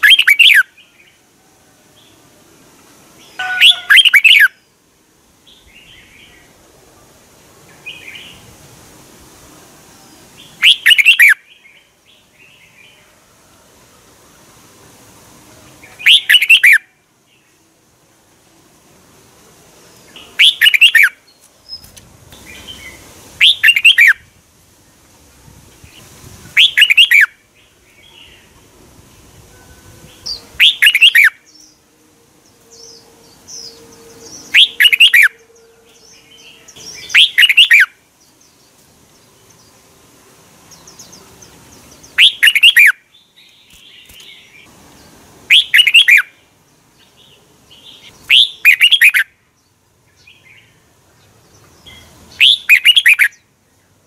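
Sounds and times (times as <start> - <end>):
bird singing fluty phrases: 0.0 - 1.2, 3.2 - 4.8, 10.1 - 13.2, 15.7 - 17.7, 19.9 - 24.3, 25.9 - 28.7, 29.4 - 39.9, 40.6 - 54.0
soft bird chirps: 20.0 - 24.2, 40.6 - 46.4, 47.0 - 54.0.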